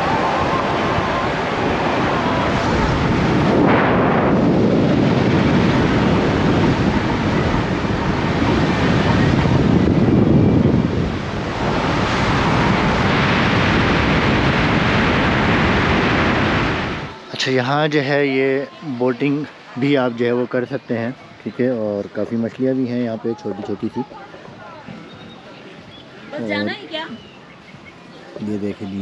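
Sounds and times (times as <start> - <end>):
wind buffeting microphone: 0.0 - 17.3
road noise: 0.0 - 29.0.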